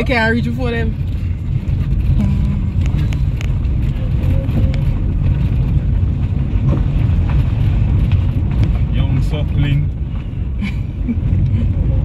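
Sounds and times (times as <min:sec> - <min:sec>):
vehicle engine and road noise: 0:00.0 - 0:12.0
wind noise: 0:00.0 - 0:12.0.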